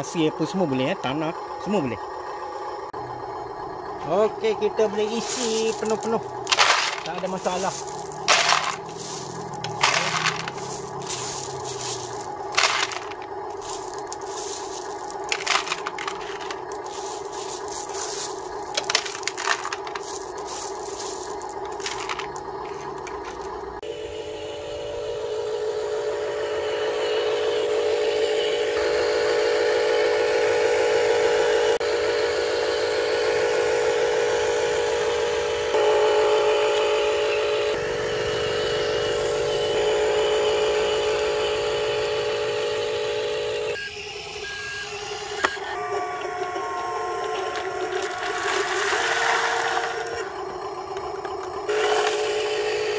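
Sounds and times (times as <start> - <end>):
toy truck motor drone: 0.7 - 52.9
gravel clattering into metal bed: 5.0 - 23.6.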